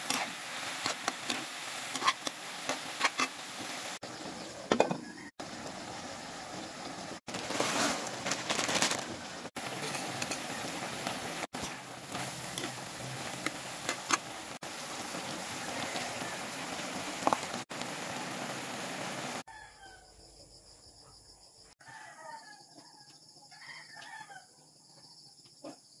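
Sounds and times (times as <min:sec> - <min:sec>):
vegetables sizzling in a wok: 0:00.0 - 0:19.5
distant rooster crowing: 0:04.9 - 0:05.4, 0:15.6 - 0:16.9, 0:19.5 - 0:20.2, 0:21.8 - 0:24.6.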